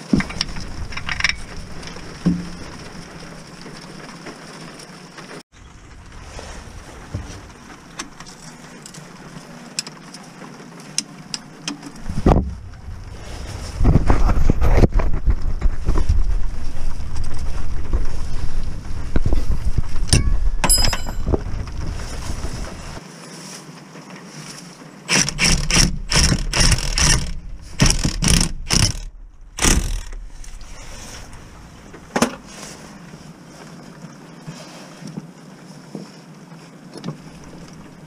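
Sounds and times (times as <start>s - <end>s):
low rumble: 0.0s - 4.0s, 5.5s - 8.5s, 12.0s - 23.0s, 25.4s - 33.4s
tool clicks: 25.1s - 30.6s.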